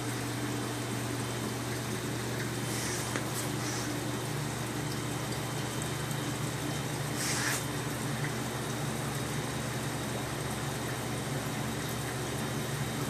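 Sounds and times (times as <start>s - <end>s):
aquarium equipment humming: 0.0s - 13.0s
short hiss: 7.2s - 7.7s.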